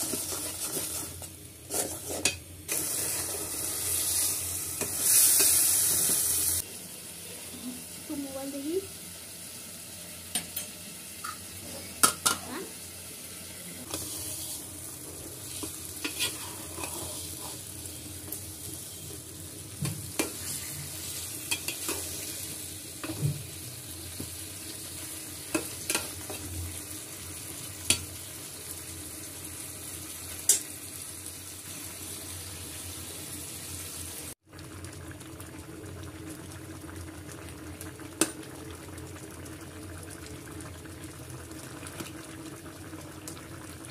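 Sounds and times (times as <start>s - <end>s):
metal spatula scraping a pot: 0.0s - 4.2s, 15.5s - 17.7s
curry sizzling in a pot: 0.0s - 43.9s.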